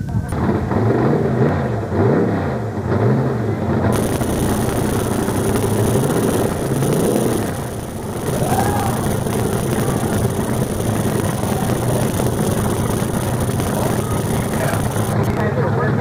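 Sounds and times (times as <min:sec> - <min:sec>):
truck engine revving: 0:03.9 - 0:15.4.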